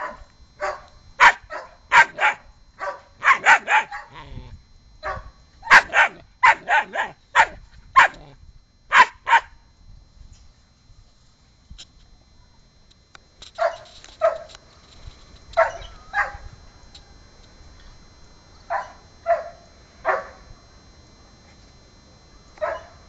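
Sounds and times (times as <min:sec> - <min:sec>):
puppy barking: 0:00.0 - 0:04.4, 0:05.0 - 0:08.3, 0:08.9 - 0:09.5, 0:13.6 - 0:14.5, 0:15.6 - 0:16.4, 0:22.6 - 0:23.0.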